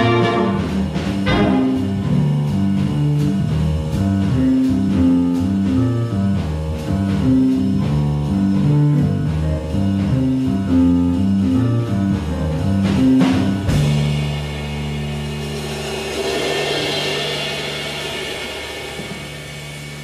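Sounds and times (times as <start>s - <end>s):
small jazz ensemble playing: 0.0s - 16.8s
cymbal wash: 14.0s - 20.0s.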